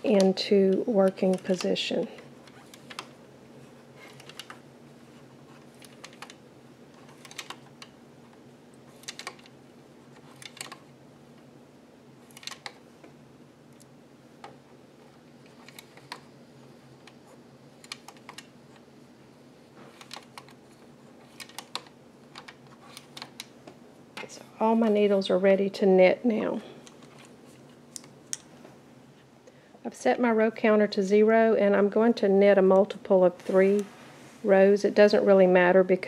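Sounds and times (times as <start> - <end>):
knitting machine plastic clicks: 4.0 - 4.6, 5.8 - 6.4, 7.0 - 8.0, 8.9 - 9.5, 10.2 - 10.8, 12.3 - 12.8, 21.3 - 23.5.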